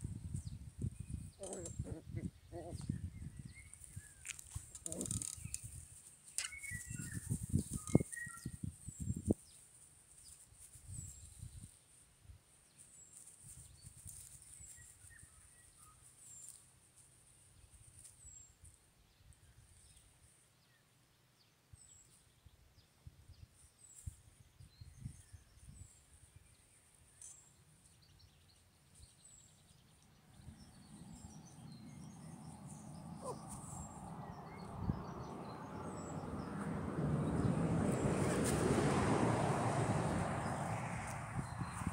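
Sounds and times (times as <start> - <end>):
wind noise on microphone: 0.0 - 9.5, 10.6 - 11.8, 23.0 - 26.4, 33.2 - 41.9
bird chirping: 0.2 - 9.6, 26.5 - 36.7.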